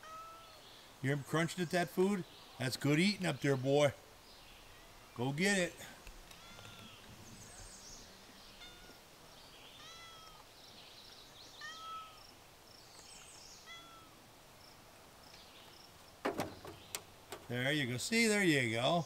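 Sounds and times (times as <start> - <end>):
cat meowing: 0.0 - 0.6, 8.6 - 9.0, 9.8 - 10.4, 11.6 - 12.2, 13.6 - 14.2.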